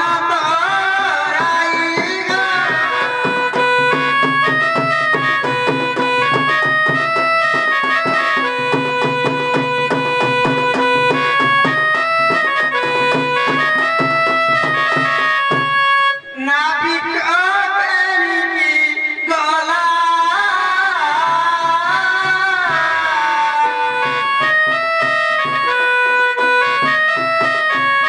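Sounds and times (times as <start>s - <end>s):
harmonium melody: 0.0s - 28.0s
hand drum beat: 1.4s - 15.7s.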